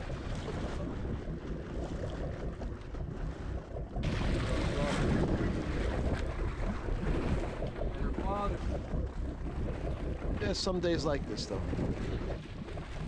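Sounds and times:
sea noise: 0.0s - 13.0s
wind buffeting microphone: 0.0s - 13.0s.

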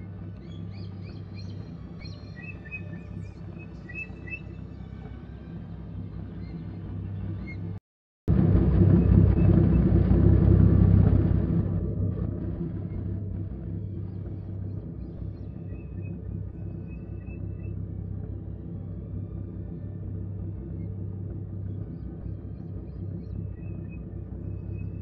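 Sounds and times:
steady low hum: 0.0s - 25.0s
jeep engine rumble: 8.3s - 25.0s.

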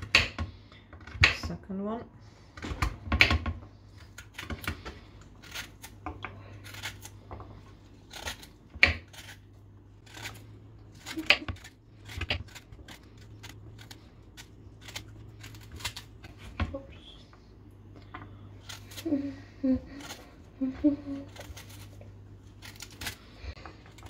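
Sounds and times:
vegetable peeling scrapes: 3.8s - 17.2s, 18.6s - 24.0s.

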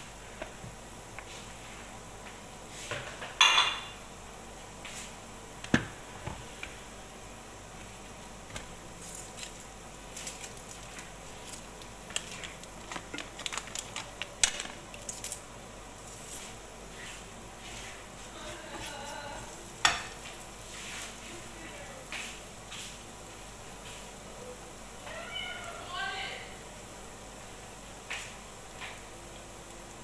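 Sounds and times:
dishes clinking and clattering: 3.0s - 4.0s.

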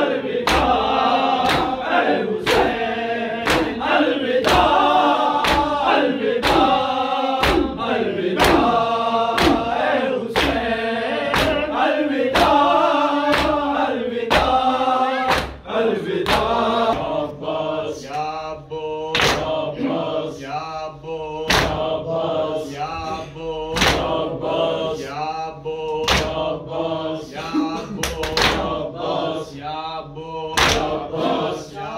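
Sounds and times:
men chanting in unison: 0.0s - 31.9s
hands slapping chests: 0.4s - 2.8s, 3.4s - 6.8s, 7.4s - 14.6s, 15.3s - 17.1s, 19.1s - 19.6s, 21.5s - 21.9s, 23.8s - 24.2s, 26.0s - 26.4s, 28.0s - 28.8s, 30.6s - 31.0s.

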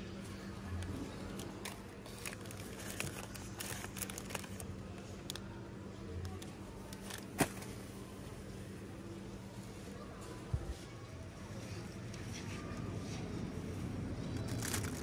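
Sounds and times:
plastic wrappers crinkling: 1.3s - 5.4s, 14.4s - 15.0s.

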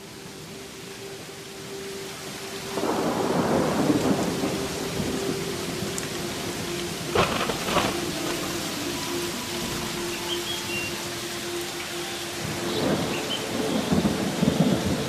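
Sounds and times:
rain hissing: 0.0s - 15.0s
low thunder rumble: 2.7s - 10.2s, 12.4s - 15.0s
sharp thunder cracks: 7.1s - 8.6s.

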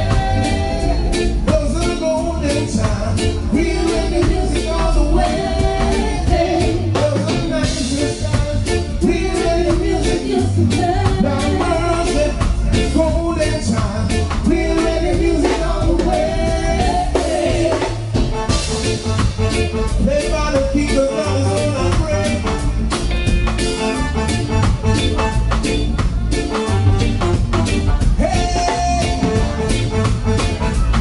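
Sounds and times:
live reggae band: 0.0s - 31.0s
person singing: 28.0s - 29.8s.

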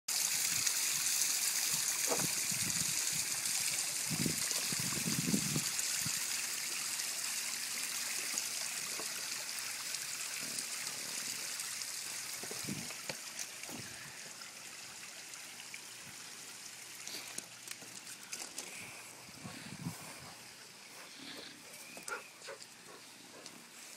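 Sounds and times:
water running over rocks: 0.1s - 23.9s.

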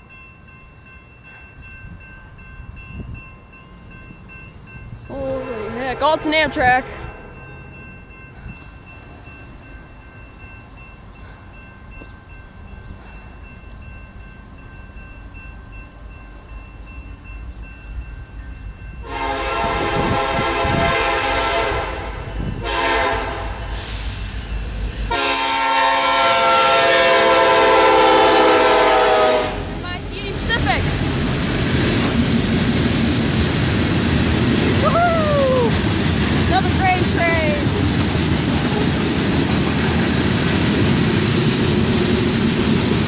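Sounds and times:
crossing warning bell ringing: 0.0s - 34.8s
locomotive air horn blasts: 5.4s - 7.4s, 19.0s - 24.0s, 25.1s - 29.8s.

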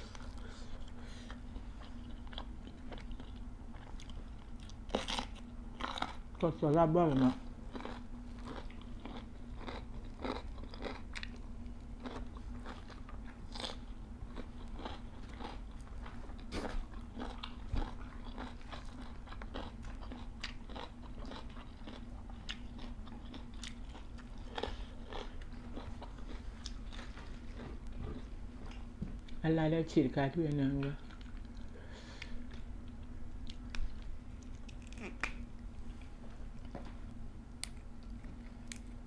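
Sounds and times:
steady low hum: 0.0s - 39.0s
crunching raw vegetables: 31.0s - 36.8s.

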